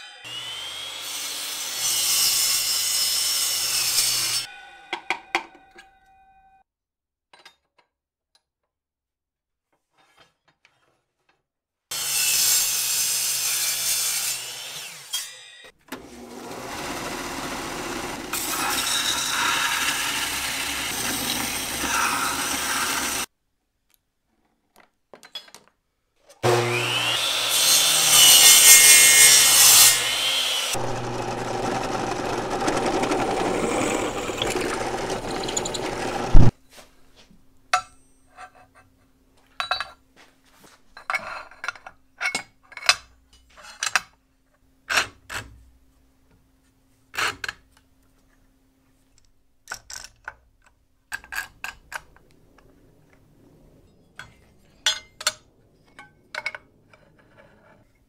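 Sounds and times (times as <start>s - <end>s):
power saw cutting aluminum: 0.0s - 4.6s, 11.9s - 23.3s, 26.4s - 36.5s
metal pieces knocking and clinking: 25.1s - 25.8s.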